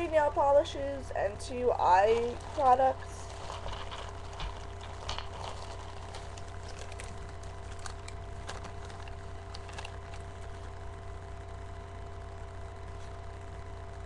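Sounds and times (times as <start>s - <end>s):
low electrical hum: 0.0s - 14.0s
plastic bag and paper rustling: 1.4s - 11.0s.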